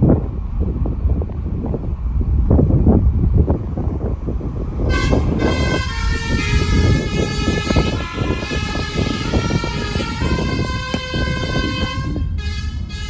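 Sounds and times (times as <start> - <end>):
wind rumble on microphone: 0.0 - 13.0
multi-tone bus horn playing a tune: 4.8 - 13.0.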